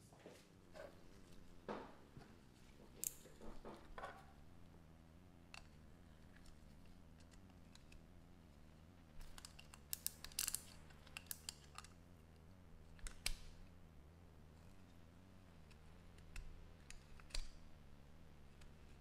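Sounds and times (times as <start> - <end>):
low steady hum: 0.0 - 19.0
handling knocks: 1.6 - 4.4.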